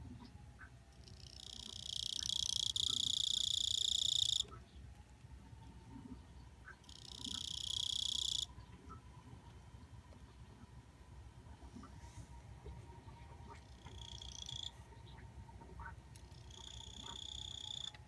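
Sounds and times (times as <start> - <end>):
cricket buzzing trills: 1.0 - 4.4, 6.8 - 8.5, 13.7 - 14.7, 16.2 - 18.0.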